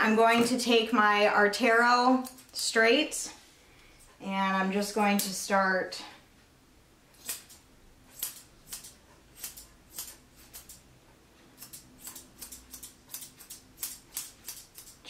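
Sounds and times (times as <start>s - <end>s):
shears snipping hair: 2.0s - 3.2s, 4.9s - 5.6s, 7.1s - 10.8s, 11.4s - 15.0s.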